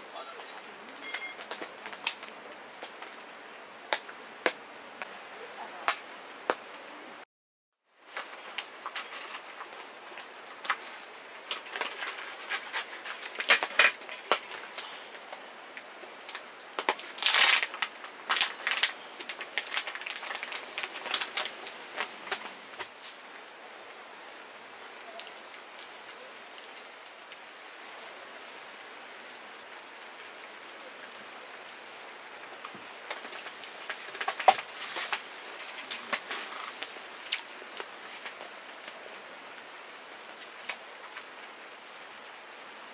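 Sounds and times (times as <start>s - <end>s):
raindrops tapping on a tent: 0.1s - 6.9s, 8.0s - 23.4s, 29.6s - 42.9s
plastic wrapper crinkling: 8.1s - 14.9s, 16.2s - 22.8s, 33.1s - 38.4s.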